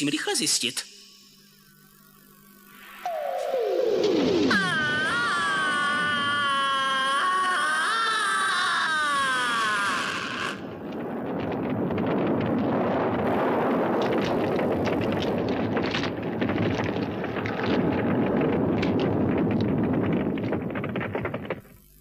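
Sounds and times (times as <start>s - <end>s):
cry gliding down in pitch: 3.0s - 10.8s
rumble of crashing rock: 3.1s - 22.0s.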